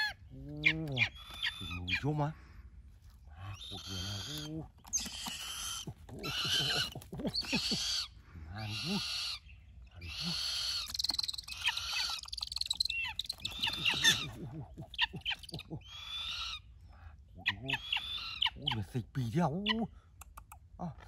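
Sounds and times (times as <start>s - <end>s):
bird harsh hissing screeches: 3.6s - 6.4s.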